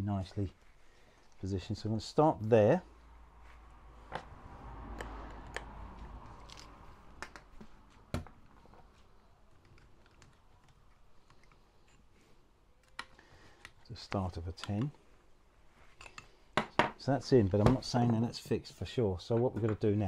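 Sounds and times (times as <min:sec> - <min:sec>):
light clicks of small parts: 0:05.0 - 0:12.1, 0:12.8 - 0:14.9.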